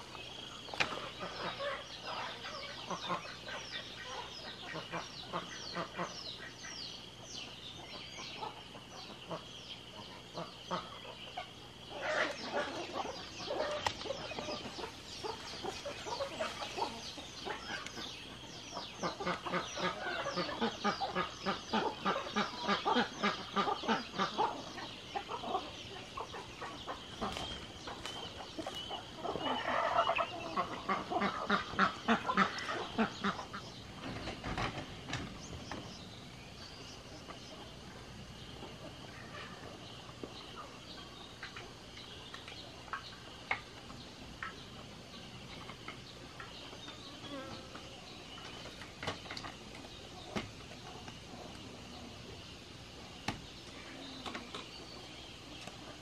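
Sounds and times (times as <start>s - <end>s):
chickens clucking: 0.0s - 36.0s, 36.7s - 56.0s
ducks quacking: 0.8s - 6.8s, 7.8s - 33.8s.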